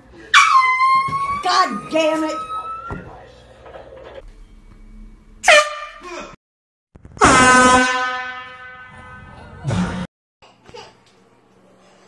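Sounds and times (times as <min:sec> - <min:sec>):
air horn blasts: 0:05.4 - 0:06.1, 0:07.2 - 0:09.5.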